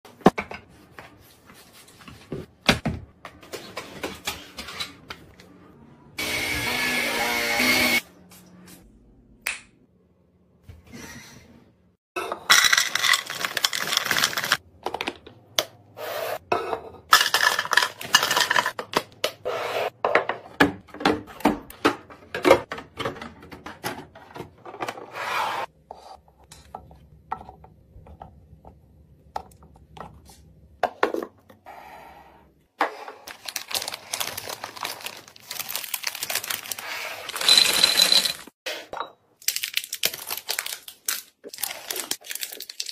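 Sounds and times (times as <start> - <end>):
snack bags crinkling: 12.6 - 14.6, 33.3 - 38.5, 39.4 - 42.9
drink cans clinking and sliding: 37.3 - 38.5.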